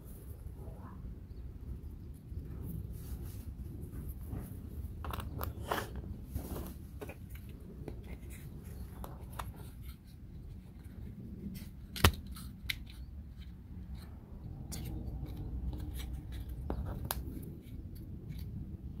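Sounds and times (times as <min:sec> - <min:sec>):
sharp wooden snap: 0:12.0 - 0:12.8.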